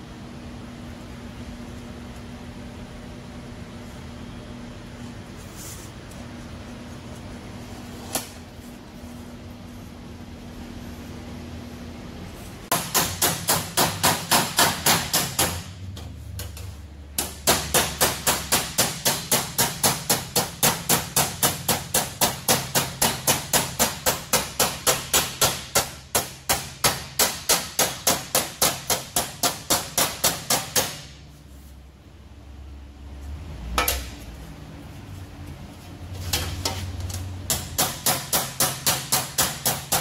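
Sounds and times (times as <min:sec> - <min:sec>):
hammer striking sheet metal: 0:12.7 - 0:16.6, 0:17.2 - 0:31.2, 0:33.7 - 0:34.2, 0:36.3 - 0:40.0.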